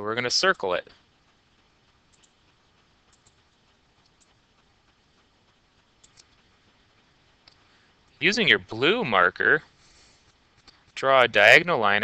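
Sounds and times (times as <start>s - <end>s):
faint mouse clicks: 2.1s - 2.4s, 3.1s - 4.4s, 6.0s - 6.4s.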